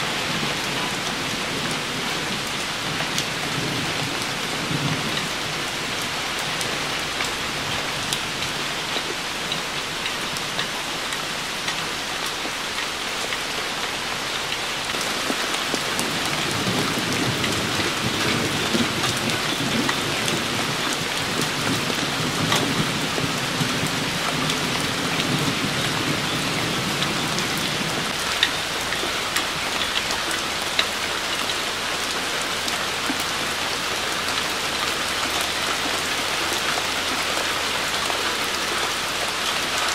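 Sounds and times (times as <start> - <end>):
rain on wet pavement: 0.0 - 39.9
low rumble of thunder: 0.1 - 9.0, 14.9 - 30.0.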